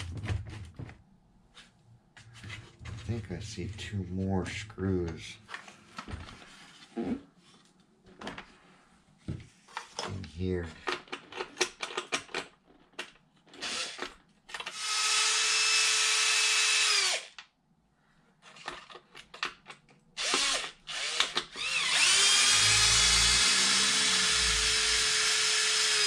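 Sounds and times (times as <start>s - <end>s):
handling clicks and rattles: 9.8s - 14.7s
cordless drill motor whine: 13.6s - 14.0s, 14.7s - 17.3s, 20.2s - 26.0s.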